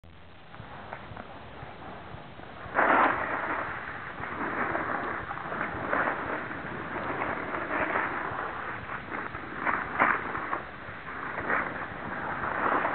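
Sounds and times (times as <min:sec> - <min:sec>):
edges scraping over packed snow: 0:02.6 - 0:12.9.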